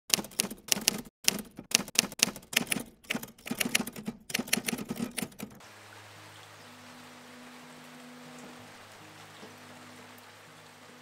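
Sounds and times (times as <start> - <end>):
typewriter keys clacking: 0.1 - 5.6.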